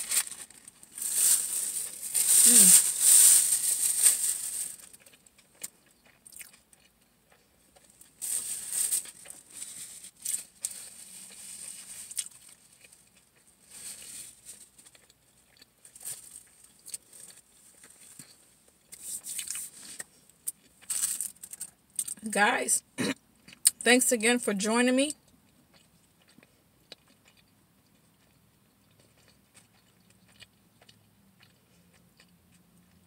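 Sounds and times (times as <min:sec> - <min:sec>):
paper napkin crinkling: 0:00.0 - 0:05.0.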